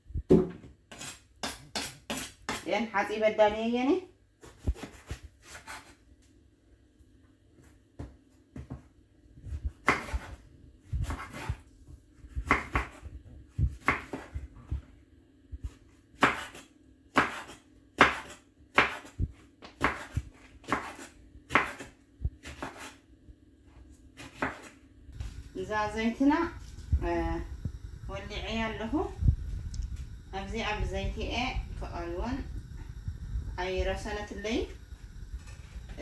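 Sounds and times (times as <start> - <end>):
knife cutting on cutting board: 4.4 - 6.0, 19.8 - 23.0.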